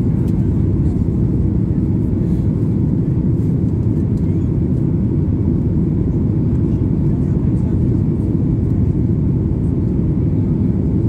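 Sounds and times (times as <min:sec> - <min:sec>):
airflow noise: 0:00.0 - 0:04.1
jet engine hum: 0:00.0 - 0:11.0.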